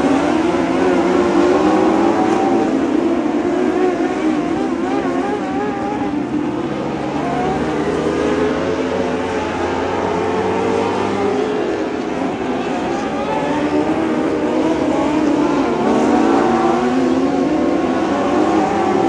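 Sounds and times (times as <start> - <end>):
racing motorcycle engines: 0.0 - 19.0.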